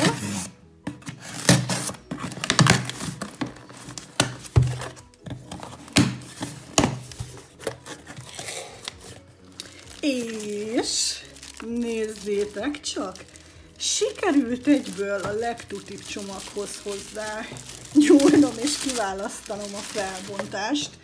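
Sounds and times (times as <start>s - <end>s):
knife slitting packing tape: 0.0s - 4.4s
plastic wrapping crinkling: 0.0s - 21.0s
cardboard taps and scrapes: 0.8s - 8.4s.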